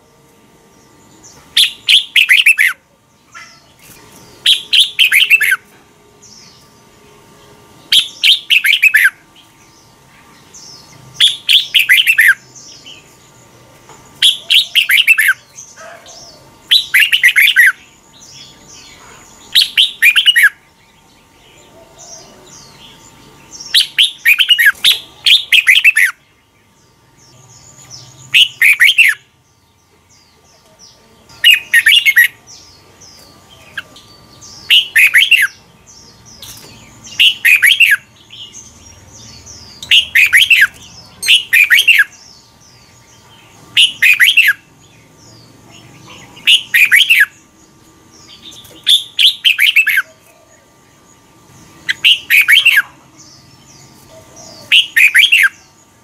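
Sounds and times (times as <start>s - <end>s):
bird warbled song: 0.0s - 56.0s.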